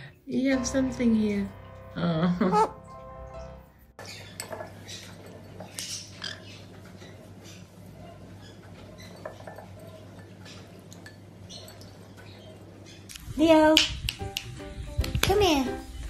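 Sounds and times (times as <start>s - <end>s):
low steady hum: 0.0s - 4.0s
light clinks against ceramic bowl: 8.8s - 12.0s.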